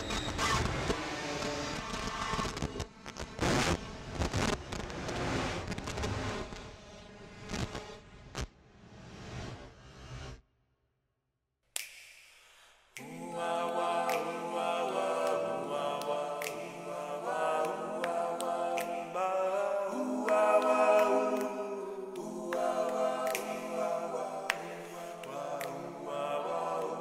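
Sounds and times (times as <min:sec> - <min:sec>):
a cappella choir singing: 0:13.0 - 0:27.0.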